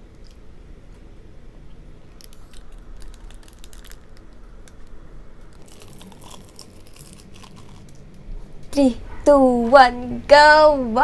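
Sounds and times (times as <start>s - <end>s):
crunching and chewing food: 0.0s - 0.5s, 2.0s - 8.6s
paper packaging crackling: 2.1s - 8.2s.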